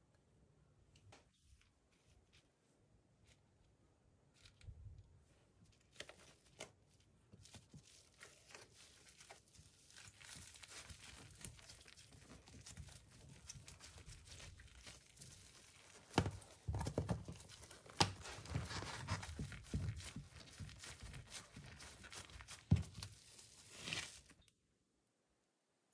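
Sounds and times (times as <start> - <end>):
crinkling and tearing: 5.7 - 24.5.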